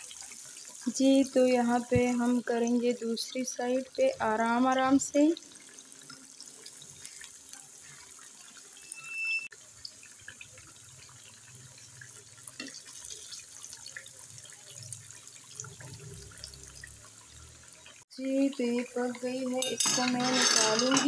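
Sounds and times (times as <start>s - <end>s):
potato slices deep-frying sizzle: 0.0s - 21.0s
brief high squeak: 8.8s - 9.5s
forks clinking against pan: 19.6s - 21.0s.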